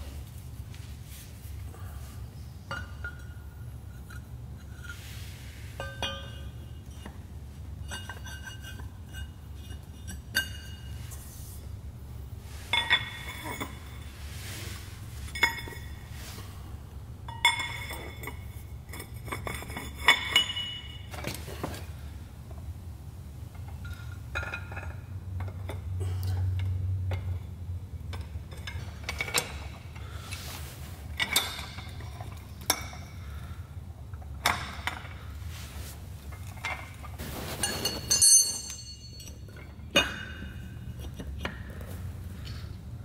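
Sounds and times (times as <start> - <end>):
steel parts and tools clinking: 2.6 - 7.2, 7.8 - 11.2, 12.6 - 14.5, 15.1 - 16.4, 17.3 - 21.3, 28.1 - 33.4, 36.3 - 42.6.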